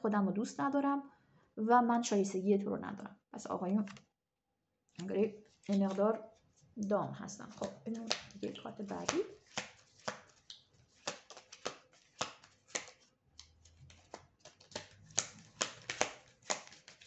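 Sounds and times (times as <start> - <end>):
cards being shuffled: 5.0 - 6.1, 7.5 - 17.0.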